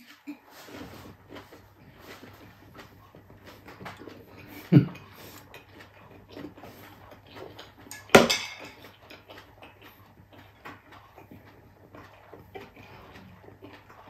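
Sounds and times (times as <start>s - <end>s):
wet chewing clicks: 0.0s - 14.0s
utensil clinking on ceramic plate: 7.9s - 8.9s.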